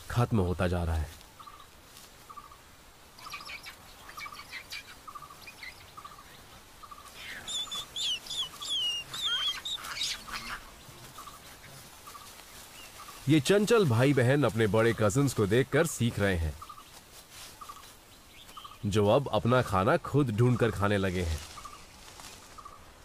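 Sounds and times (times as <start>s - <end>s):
quick gliding bird chirps and whistles: 6.9s - 10.6s.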